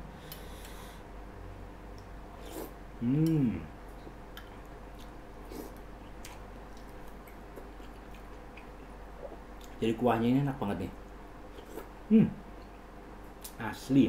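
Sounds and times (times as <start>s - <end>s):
person humming mmm: 2.5s - 3.8s.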